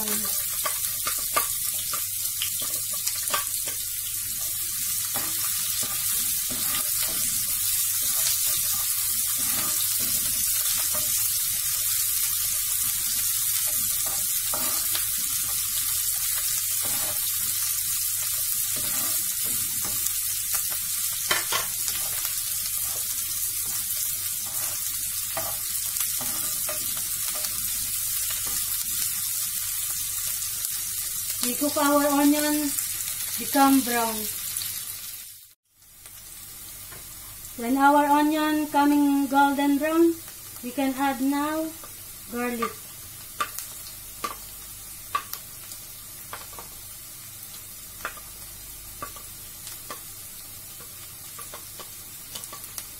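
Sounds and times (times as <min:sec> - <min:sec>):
onion sizzling in a frying pan: 0:00.0 - 0:52.9
spatula scraping a pan: 0:05.1 - 0:11.3, 0:12.8 - 0:15.7, 0:16.4 - 0:17.6, 0:18.2 - 0:20.1, 0:21.2 - 0:27.8.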